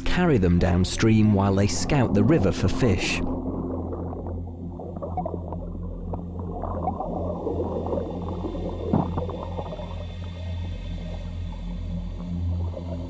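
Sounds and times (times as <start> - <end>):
steady low hum: 0.0 - 13.0
underwater river current rushing: 0.1 - 13.0
loud water gurgle: 0.2 - 10.2
bubbling and small pops: 3.3 - 10.4.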